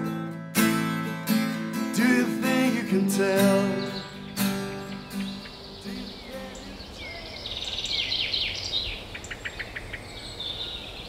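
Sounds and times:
acoustic guitar chord strummed: 0.0 - 6.9
songbirds singing: 1.9 - 11.0.

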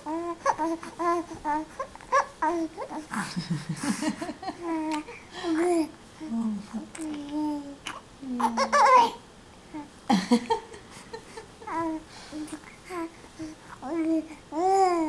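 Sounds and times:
baby cooing and babbling: 0.0 - 3.2, 4.6 - 9.9, 11.7 - 13.2, 13.8 - 15.0.

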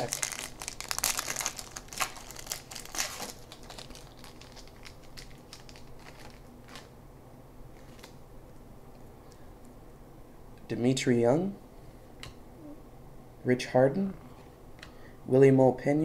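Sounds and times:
wrapper tearing and crinkling: 0.0 - 6.9, 7.8 - 8.2.

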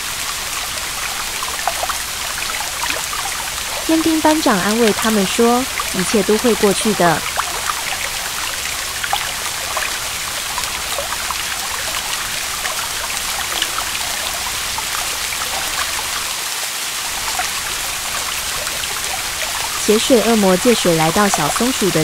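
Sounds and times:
heavy rain falling: 0.0 - 22.0
raindrops splashing: 0.0 - 22.0.

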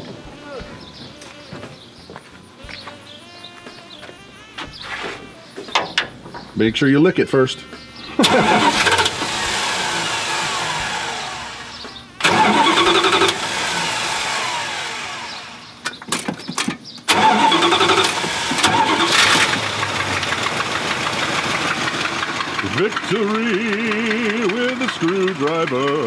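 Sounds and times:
engine running: 7.5 - 16.3, 17.0 - 26.0
engine cranking: 8.2 - 26.0.

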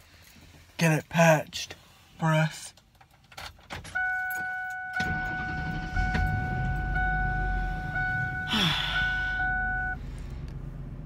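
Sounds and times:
electronic warning tone: 4.0 - 10.0
vehicle engine starting and idling: 4.0 - 11.0.

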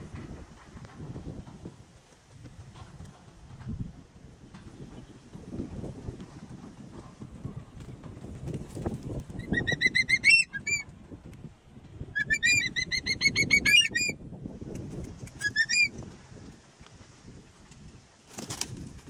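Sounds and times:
wings flapping: 7.8 - 10.4, 17.7 - 19.0
hawk-eagle shrill whistled calls: 9.4 - 10.8, 12.2 - 14.2, 15.4 - 15.9.

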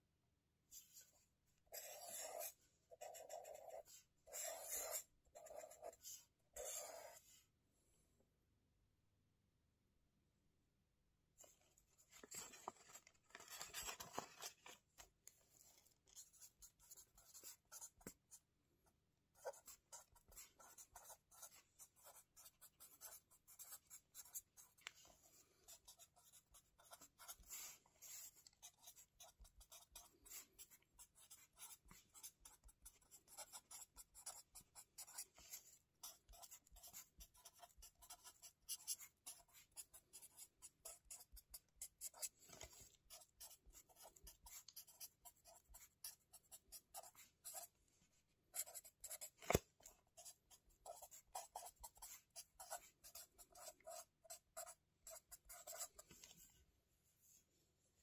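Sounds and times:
pen scratching on paper: 1.7 - 7.4, 15.6 - 18.5, 19.3 - 47.8, 48.5 - 56.4.

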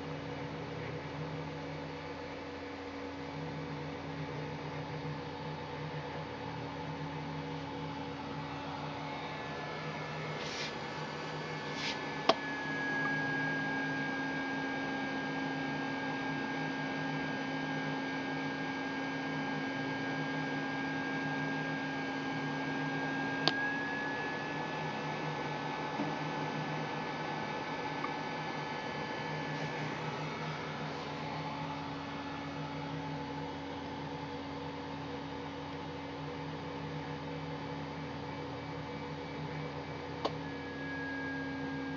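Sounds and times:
power supply and fan hum: 0.0 - 41.9
thin high whine: 7.7 - 16.7, 40.3 - 41.9.

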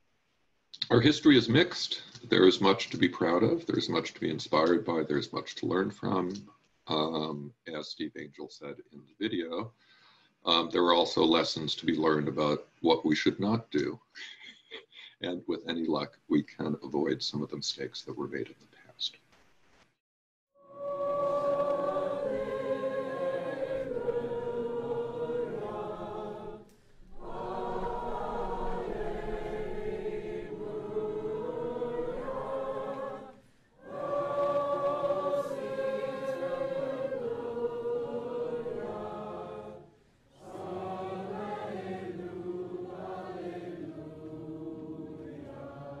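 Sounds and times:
choir singing: 20.6 - 46.0.

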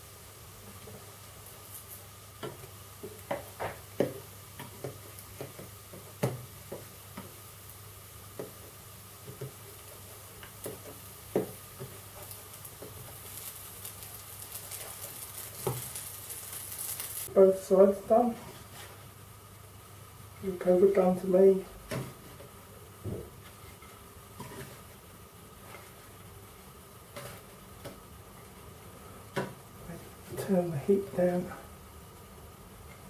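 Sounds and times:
cakes sizzling in frying pan: 0.0 - 33.0
spatula knocking and scraping pan: 2.4 - 7.4, 8.3 - 13.2.

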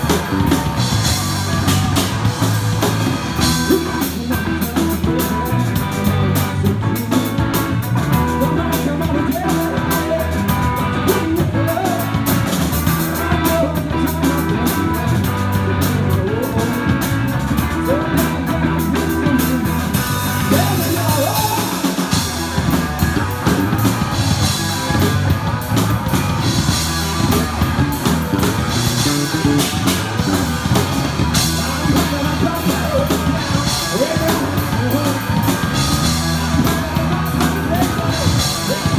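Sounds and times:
distorted electric guitars: 0.0 - 38.9
drums and cymbals: 0.0 - 38.9
person singing: 3.4 - 22.8, 29.0 - 38.9.

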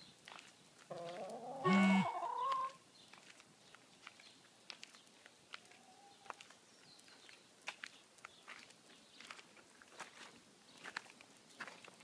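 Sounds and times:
hen calling with squawk: 0.9 - 2.8.

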